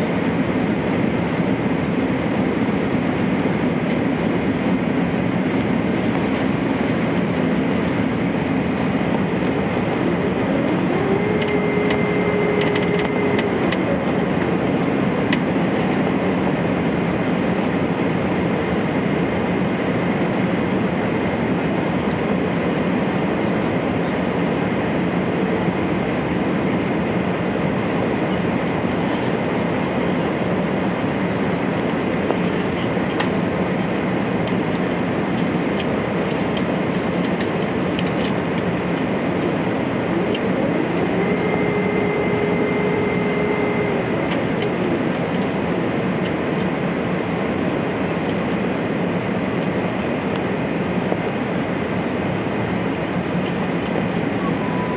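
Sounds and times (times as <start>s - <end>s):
aircraft cabin noise: 0.0s - 54.9s.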